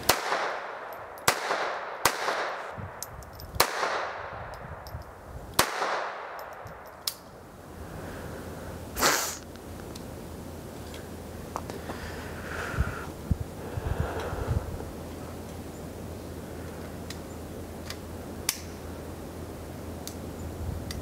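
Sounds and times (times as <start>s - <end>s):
pistol shots with echo: 0.0s - 2.7s, 3.6s - 4.4s, 5.6s - 6.8s.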